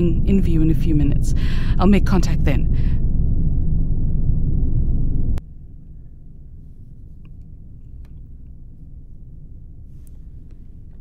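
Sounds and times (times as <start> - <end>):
deep rumbling wind: 0.0 - 5.8
faint low rumble: 0.0 - 11.0.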